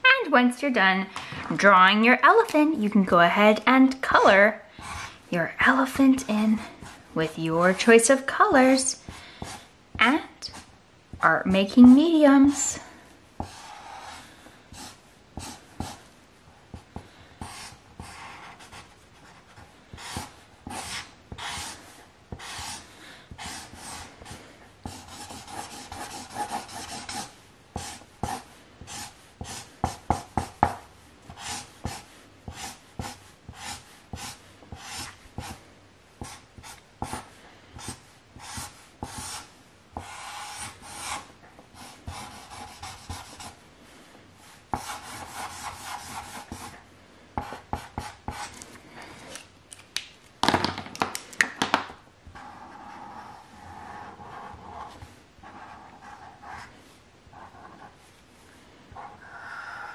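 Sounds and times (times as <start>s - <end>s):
marker rubbing on paper: 13.4s - 16.1s, 16.7s - 35.6s, 36.2s - 43.6s, 44.7s - 46.8s, 52.4s - 56.7s.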